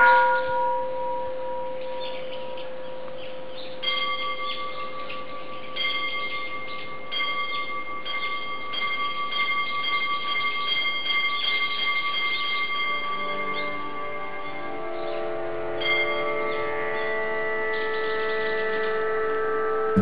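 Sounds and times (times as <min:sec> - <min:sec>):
bell-like chime tones: 0:03.8 - 0:14.6.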